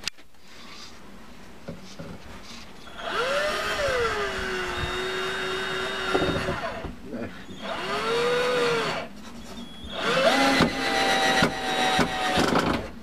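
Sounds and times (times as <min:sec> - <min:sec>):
cordless drill drilling into wood: 0:02.9 - 0:06.9, 0:07.5 - 0:09.1, 0:09.9 - 0:13.0.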